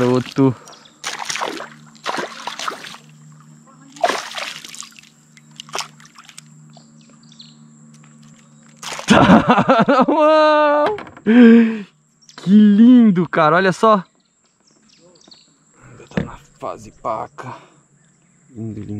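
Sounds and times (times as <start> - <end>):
fish splashing at surface: 1.0 - 3.1, 3.9 - 6.5, 8.8 - 9.3.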